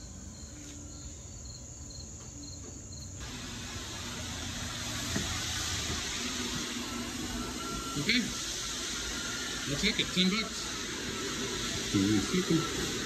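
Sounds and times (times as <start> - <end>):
faint cricket chirps: 0.0 - 3.3
steady hiss: 0.0 - 13.0.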